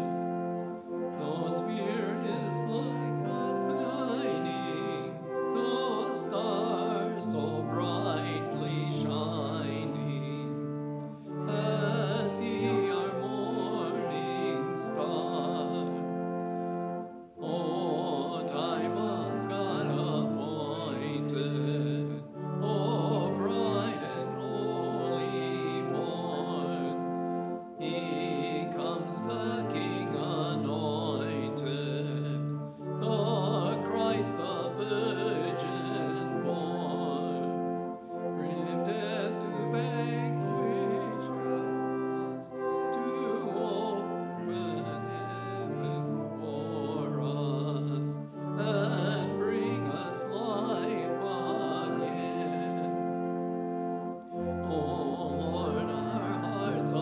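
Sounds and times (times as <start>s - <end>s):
congregation singing a hymn: 0.0s - 57.0s
organ chords: 0.0s - 57.0s.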